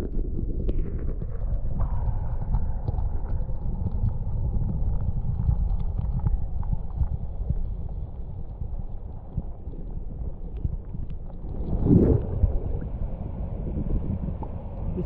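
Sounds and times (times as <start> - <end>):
muffled underwater river rushing: 0.0 - 15.0
water swish: 11.4 - 15.0.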